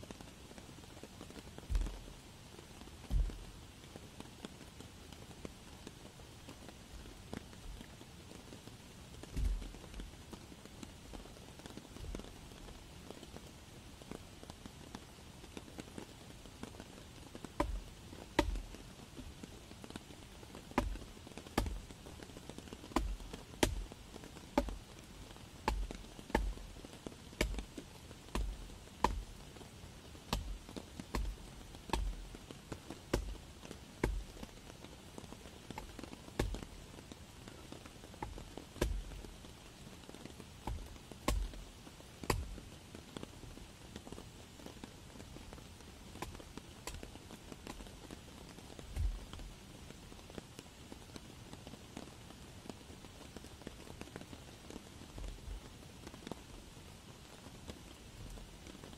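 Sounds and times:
hatchet chopping log: 17.5s - 18.7s, 20.8s - 21.9s, 22.9s - 23.9s, 24.6s - 24.8s, 25.6s - 26.6s, 27.4s - 27.7s, 28.3s - 29.4s, 30.3s - 32.3s, 33.1s - 33.3s, 34.0s - 34.5s, 35.7s - 36.7s, 38.2s - 39.2s, 40.6s - 41.6s, 42.3s - 42.6s, 49.0s - 49.2s.

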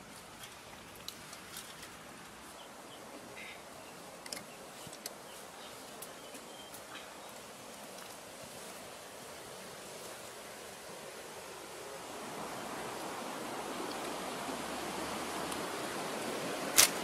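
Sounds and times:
brush rustling: 0.0s - 11.0s
twigs snapping: 16.7s - 17.0s.

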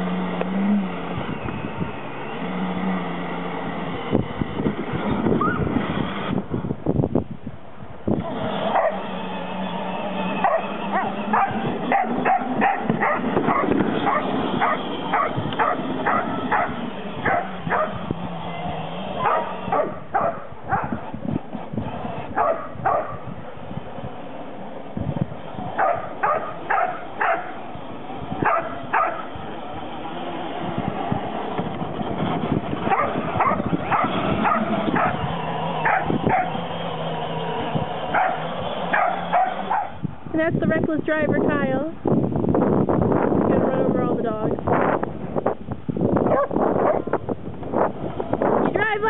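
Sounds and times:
dog barking: 8.7s - 9.0s, 10.4s - 18.0s, 19.2s - 21.0s, 22.4s - 23.2s, 25.8s - 27.5s, 28.4s - 29.3s, 32.9s - 35.2s, 35.8s - 36.5s, 38.2s - 40.0s, 46.3s - 47.1s.

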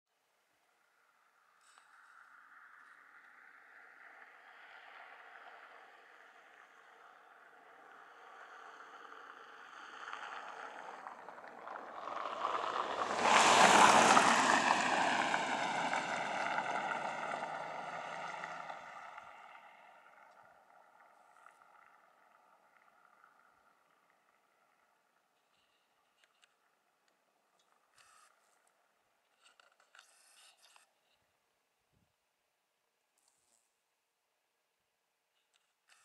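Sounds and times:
vehicle passing by: 2.3s - 23.7s.

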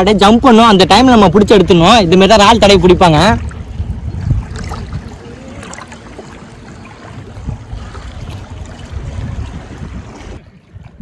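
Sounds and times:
river water sloshing: 0.0s - 11.0s
small splashes: 3.2s - 11.0s.

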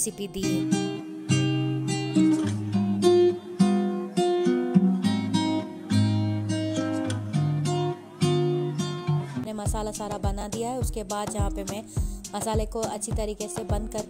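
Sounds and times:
acoustic guitar strumming: 0.0s - 14.0s.

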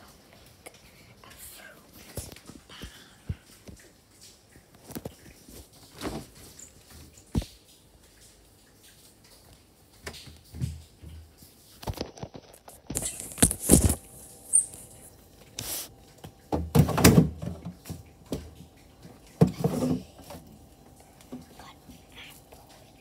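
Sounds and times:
rustling: 12.1s - 15.9s.

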